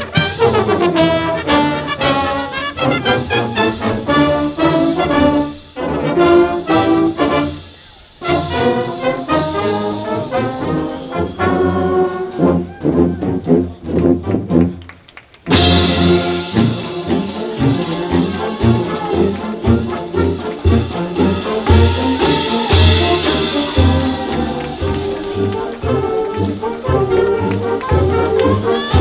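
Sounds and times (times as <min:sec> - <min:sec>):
marching band playing: 0:00.0 - 0:29.0
cymbal crash: 0:20.8 - 0:25.8.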